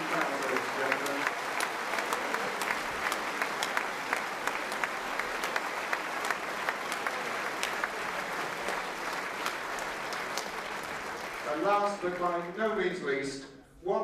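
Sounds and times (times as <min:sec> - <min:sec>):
audience applauding: 0:00.0 - 0:12.8.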